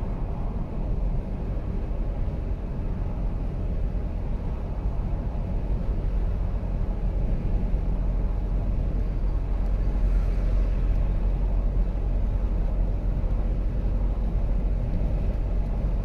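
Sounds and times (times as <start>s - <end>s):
car road rumble from inside: 0.0s - 16.0s.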